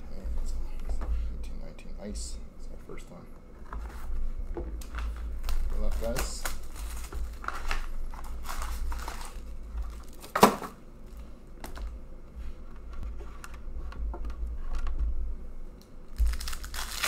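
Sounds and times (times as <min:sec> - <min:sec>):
cardboard and foil rustling: 0:04.8 - 0:11.2, 0:16.2 - 0:17.0
foil pack crinkling open: 0:04.9 - 0:11.2, 0:16.1 - 0:17.0.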